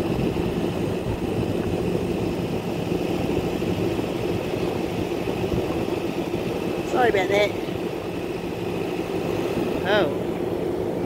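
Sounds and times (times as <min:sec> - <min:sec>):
heavy engine idling: 0:00.0 - 0:11.0.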